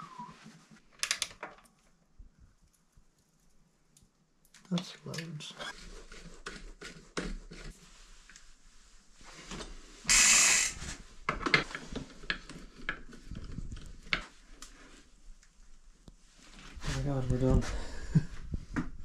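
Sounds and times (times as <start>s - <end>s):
air hiss burst: 10.0s - 11.0s.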